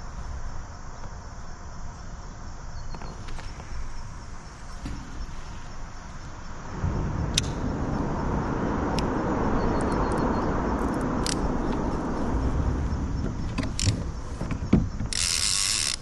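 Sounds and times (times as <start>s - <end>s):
fishing reel gears whirring: 15.1s - 16.0s
reel clicks: 15.1s - 16.0s.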